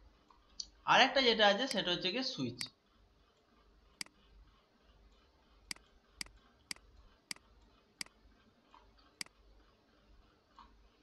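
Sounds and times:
computer mouse clicks: 0:05.7 - 0:08.2, 0:08.8 - 0:09.4.

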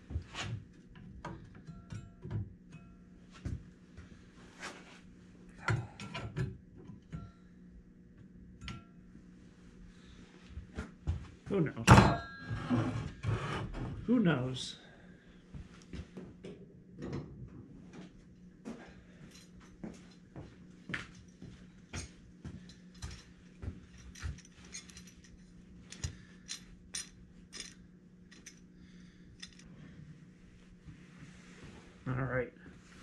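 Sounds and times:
metal tools clinking: 0:22.0 - 0:28.6, 0:29.4 - 0:29.7.

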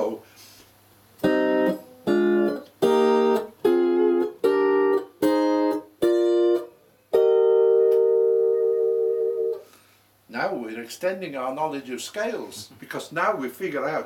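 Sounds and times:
steel guitar plucked chords: 0:01.2 - 0:09.7.

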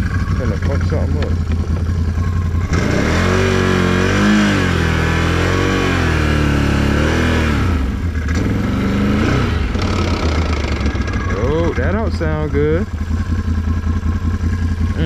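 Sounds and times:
atv engine revving: 0:00.0 - 0:15.0.

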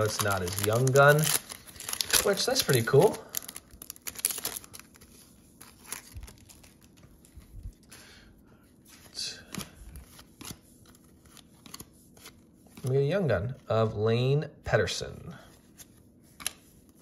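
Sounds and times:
trading cards flipped by hand: 0:08.9 - 0:12.9, 0:15.7 - 0:17.0.

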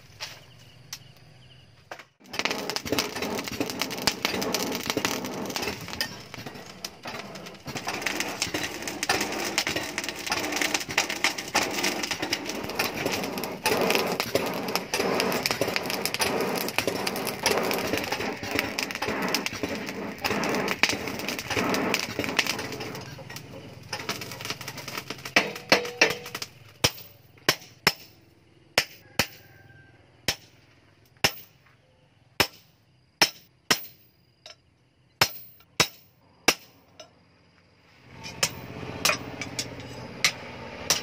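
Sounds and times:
charcoal crackling: 0:02.2 - 0:28.1.

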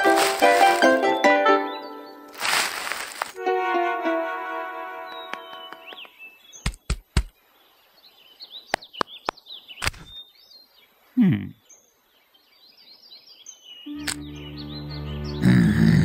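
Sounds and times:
birds chirping: 0:00.0 - 0:03.4, 0:05.0 - 0:16.0
sharp clicks or taps: 0:05.3 - 0:07.3.

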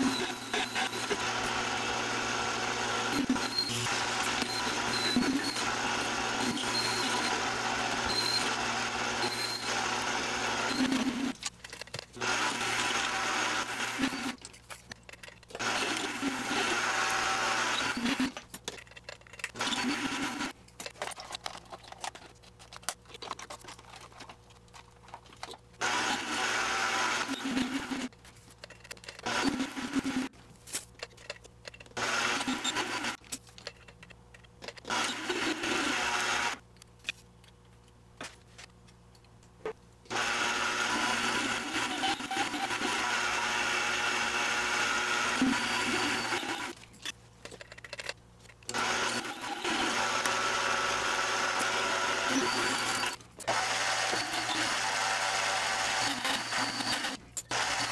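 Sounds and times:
metal lathe cutting steel: 0:25.9 - 0:28.1, 0:40.2 - 0:46.7, 0:48.8 - 0:57.9.

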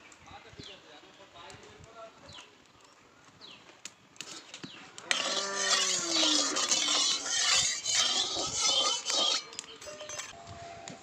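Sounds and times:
spatula scraping a metal pan: 0:05.1 - 0:10.4.

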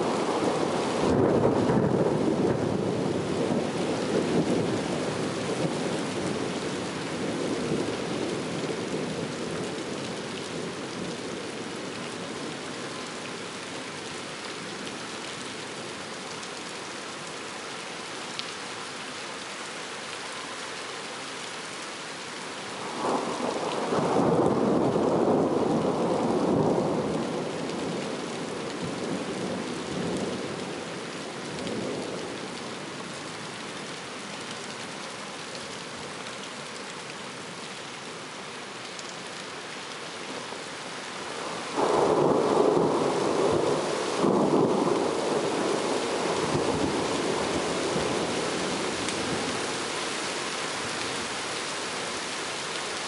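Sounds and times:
steady rain: 0:00.0 - 0:53.0
thunder rumbling: 0:00.4 - 0:05.7, 0:41.8 - 0:48.3.

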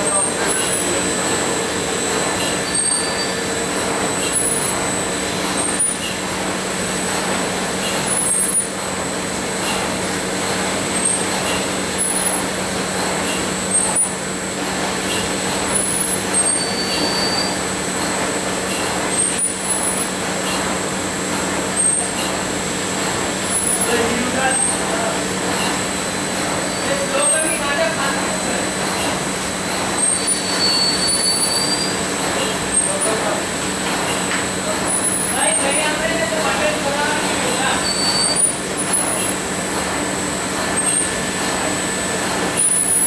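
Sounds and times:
machine high whine: 0:00.0 - 0:06.1.

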